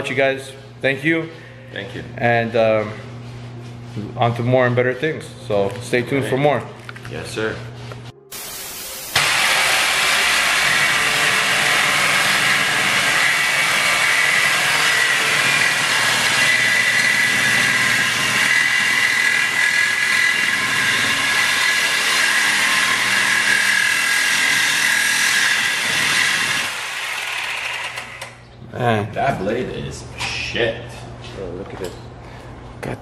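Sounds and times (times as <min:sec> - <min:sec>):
reciprocating saw cutting metal pipe: 0:09.1 - 0:28.4.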